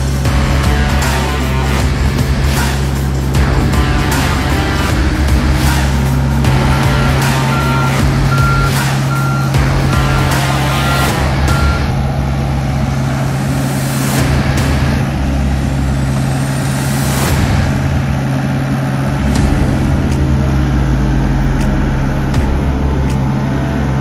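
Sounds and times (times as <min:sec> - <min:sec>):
diesel engine under load: 0:00.0 - 0:24.0
travel alarm beeping: 0:06.5 - 0:11.9.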